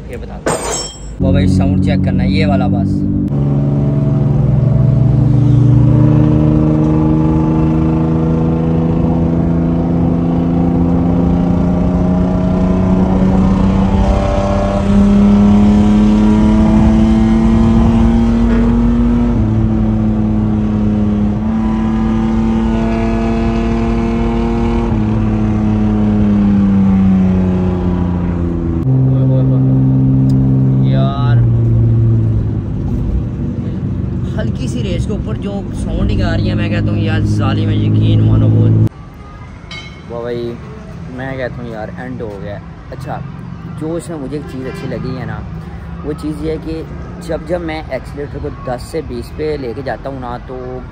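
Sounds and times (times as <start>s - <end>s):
car engine under light throttle: 1.2s - 38.9s.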